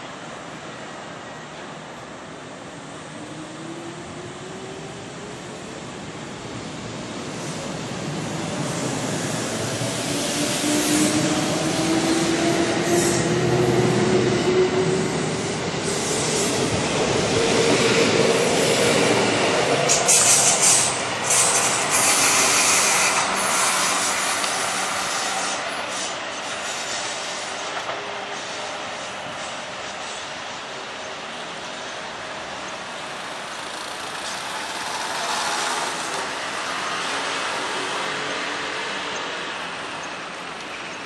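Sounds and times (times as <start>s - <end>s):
electric train running rumble: 0.0s - 41.0s
high-pitched wheel squeal: 19.9s - 26.1s.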